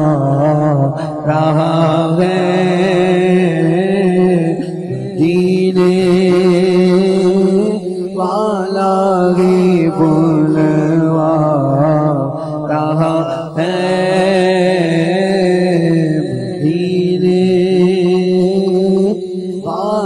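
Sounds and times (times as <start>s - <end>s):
steady held drone: 0.0s - 11.1s
man singing into a microphone: 0.0s - 20.0s.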